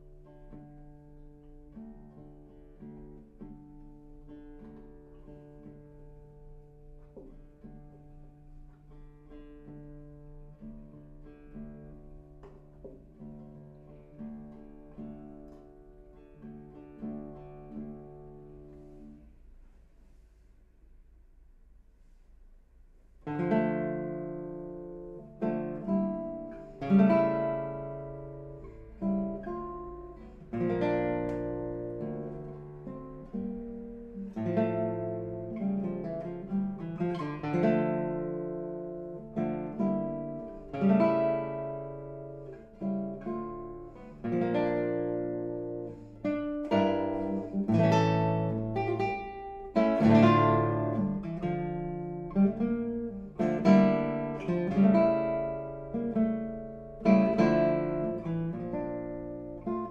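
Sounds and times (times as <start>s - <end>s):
classical guitar playing: 0.0s - 59.9s.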